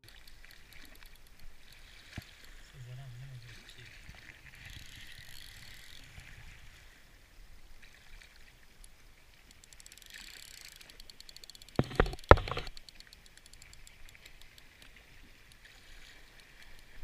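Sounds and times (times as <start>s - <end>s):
fast faint ticking: 9.4s - 14.9s.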